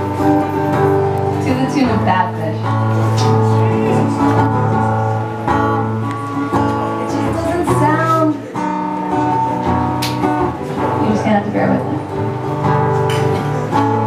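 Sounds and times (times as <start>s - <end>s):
acoustic guitar strumming: 0.0s - 14.0s
woman singing: 7.0s - 8.4s.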